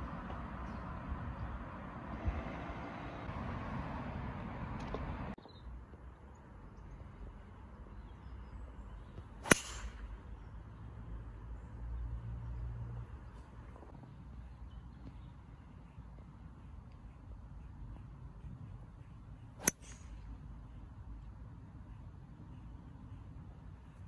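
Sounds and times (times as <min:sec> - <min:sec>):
golf ball struck off tee: 0:09.4 - 0:10.2, 0:19.6 - 0:20.2.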